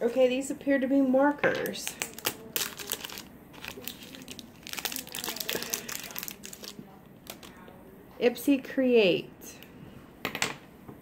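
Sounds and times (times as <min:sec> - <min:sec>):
plastic packaging crinkling: 0:01.7 - 0:07.6.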